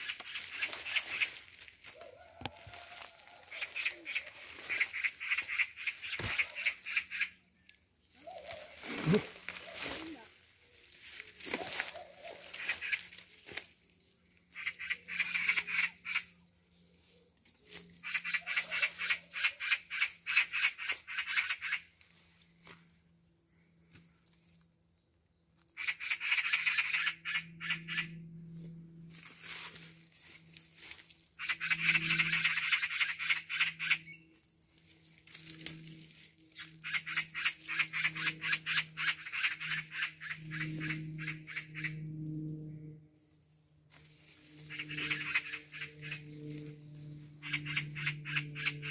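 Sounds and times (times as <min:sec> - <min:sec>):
magpies chattering: 0:00.0 - 0:02.0, 0:03.0 - 0:07.5, 0:08.1 - 0:13.6, 0:14.4 - 0:16.4, 0:17.7 - 0:21.9, 0:25.7 - 0:28.2, 0:30.8 - 0:34.3, 0:36.5 - 0:42.0, 0:44.6 - 0:48.9.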